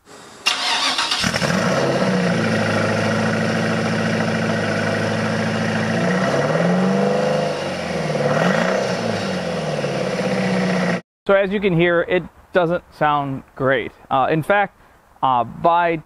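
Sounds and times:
misfiring car engine revving: 0.4 - 11.0.

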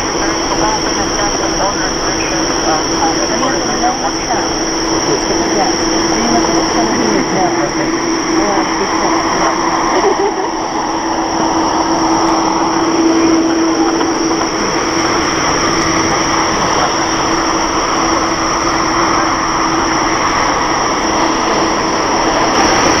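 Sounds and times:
constant hum: 0.0 - 23.0
jet engines roaring: 0.0 - 23.0.

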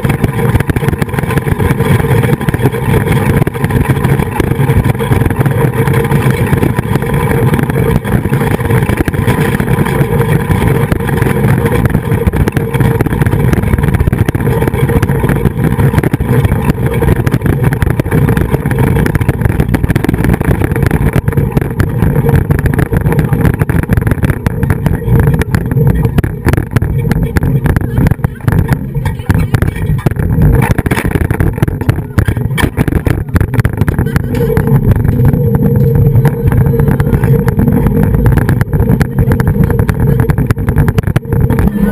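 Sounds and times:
wind buffeting microphone: 0.0 - 41.9.

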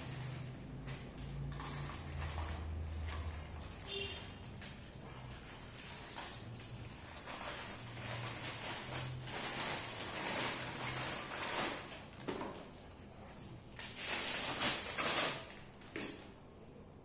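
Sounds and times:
plastic bag crinkling: 0.0 - 16.2.

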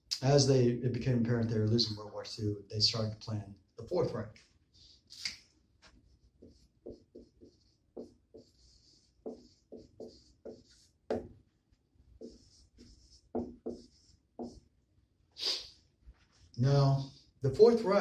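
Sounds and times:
marker squeaking on whiteboard: 4.8 - 11.4, 12.2 - 14.7.

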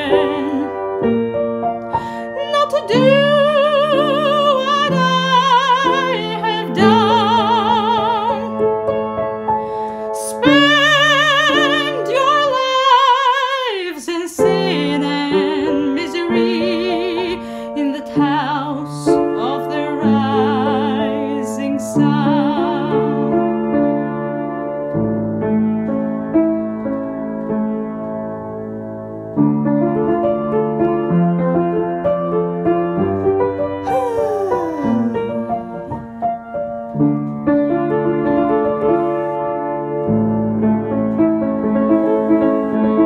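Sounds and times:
woman singing with vibrato: 0.0 - 0.9, 2.0 - 8.5, 10.2 - 23.4, 33.8 - 36.2.

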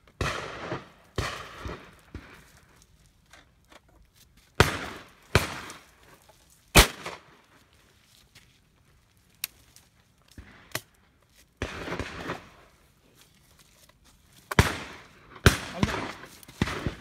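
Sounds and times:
shotgun shots echoing: 0.2 - 2.0, 4.6 - 5.8, 6.8 - 7.2, 14.5 - 17.0.

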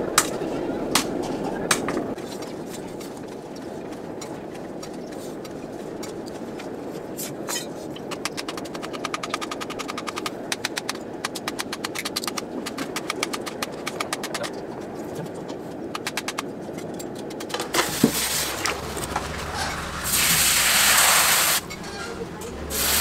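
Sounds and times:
rapid even clicking: 8.0 - 23.0
forge low rush: 17.6 - 23.0
hot blade hissing in water: 20.0 - 21.7, 22.7 - 23.0.

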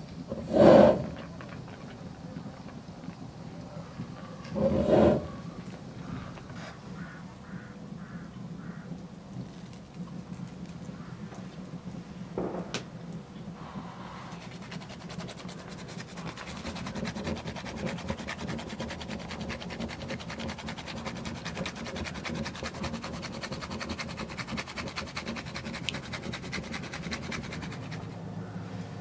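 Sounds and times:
nutmeg grating: 14.3 - 28.2.

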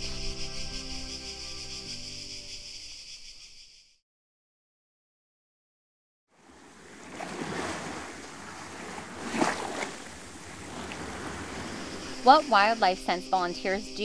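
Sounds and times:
small waves washing up shore: 6.4 - 12.6.

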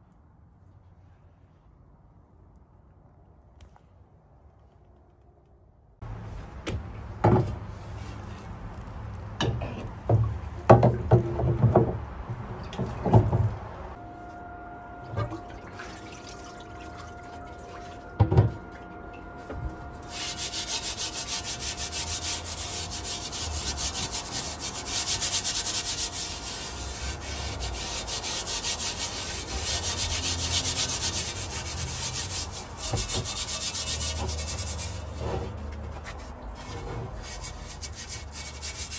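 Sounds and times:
steel wool scrubbing metal: 14.5 - 38.9.

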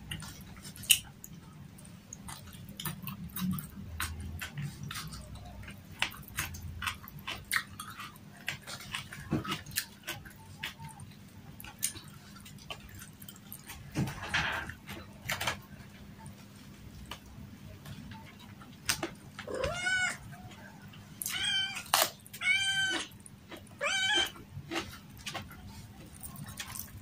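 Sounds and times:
chewing and eating sounds: 0.0 - 27.0
cat meowing: 19.4 - 20.6, 21.2 - 23.1, 23.8 - 24.4.

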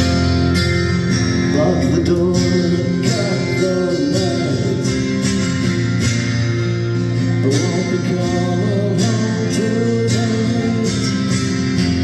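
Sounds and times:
amplified acoustic guitar: 0.0 - 12.0
drums: 0.0 - 12.0.

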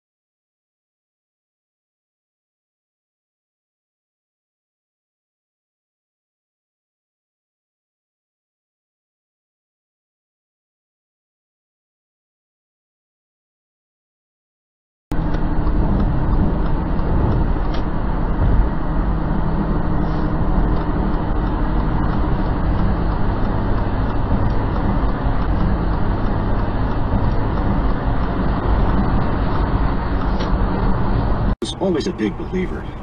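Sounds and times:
car engine and road noise: 15.1 - 33.0.

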